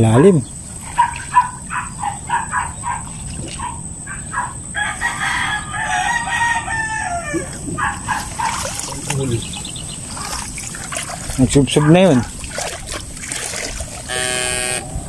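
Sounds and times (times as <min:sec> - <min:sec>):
rooster crowing: 0:04.1 - 0:08.6.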